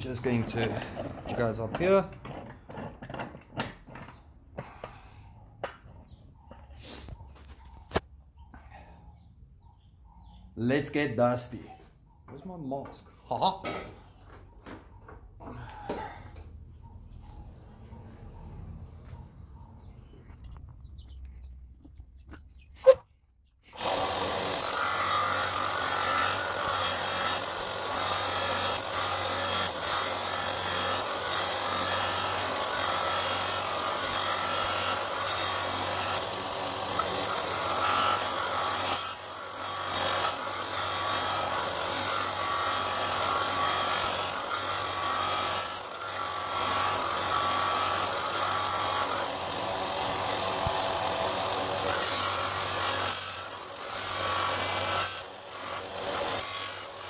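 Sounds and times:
disc sander grinding wood: 0:23.7 - 0:57.0.

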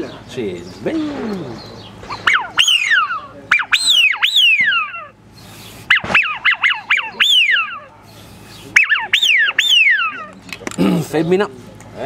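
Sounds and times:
duck call whistles: 0:02.1 - 0:05.1, 0:05.9 - 0:07.9, 0:08.7 - 0:10.3.

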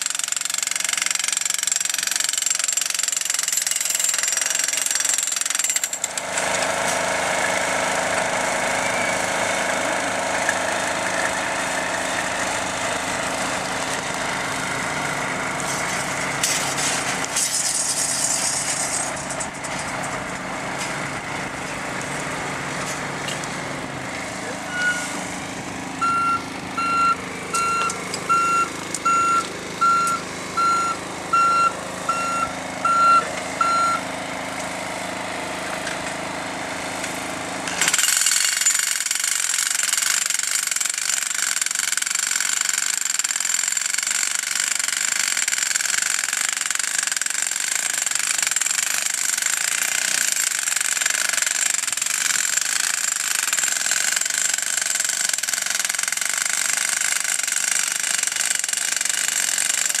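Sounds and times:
jackhammers rattling: 0:00.0 - 1:00.0
truck engine: 0:05.8 - 0:38.1
truck reversing beeper: 0:08.4 - 0:10.0, 0:24.4 - 0:25.3, 0:25.9 - 0:34.3.

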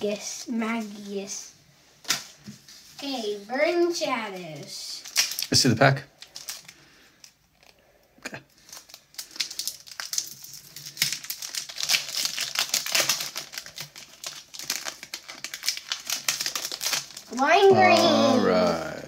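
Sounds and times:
foil wrapper crinkling: 0:04.4 - 0:05.6, 0:06.2 - 0:07.8, 0:08.5 - 0:17.4.

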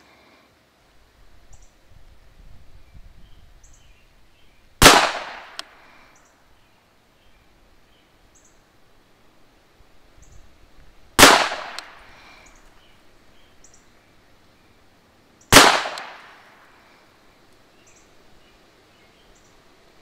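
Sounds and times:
pistol shots with echo: 0:04.8 - 0:05.7, 0:11.2 - 0:12.0, 0:15.5 - 0:16.5.

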